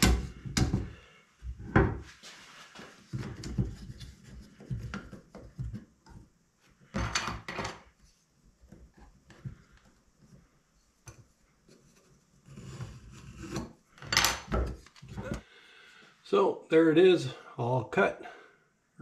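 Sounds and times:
rubbing and shuffling: 0:02.0 - 0:05.8.

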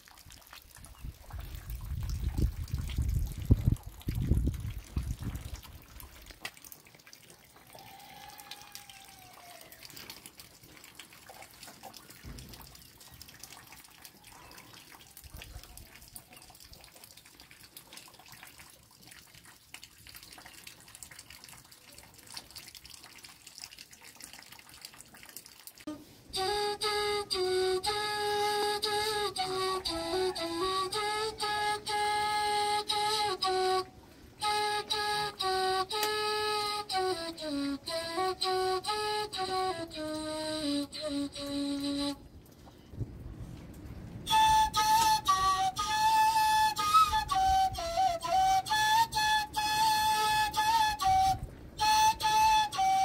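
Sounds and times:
water dripping and trickling: 0:00.0 - 0:53.0
end-blown flute playing: 0:25.9 - 0:42.2, 0:44.2 - 0:53.0.

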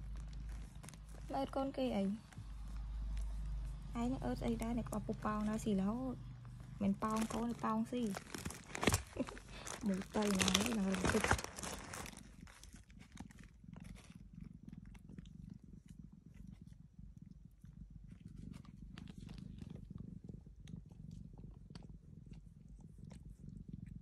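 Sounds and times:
faint licking clicks: 0:00.0 - 0:01.3, 0:18.2 - 0:24.0
cat purring: 0:00.0 - 0:24.0.

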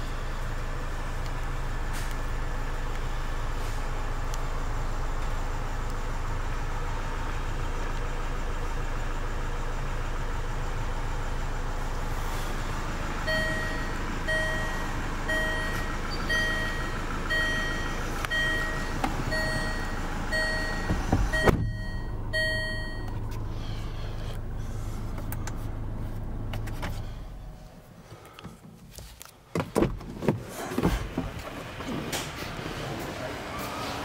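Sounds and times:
car cabin low hum: 0:00.0 - 0:34.0
dashboard warning chime: 0:13.2 - 0:23.2.

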